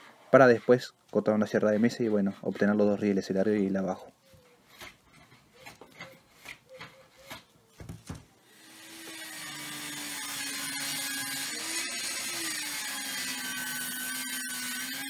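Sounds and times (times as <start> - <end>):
hand plane shaving wood: 0.0 - 3.7, 4.3 - 7.6
table saw ripping board: 7.3 - 15.0.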